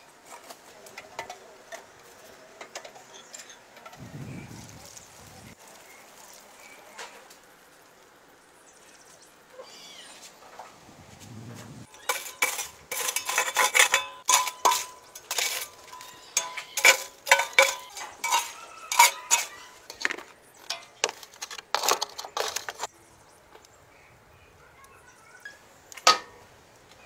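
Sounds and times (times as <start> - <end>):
metal scraper scraping coals: 0.2 - 4.0, 11.8 - 22.9
metal baking tray clanking: 11.9 - 22.9.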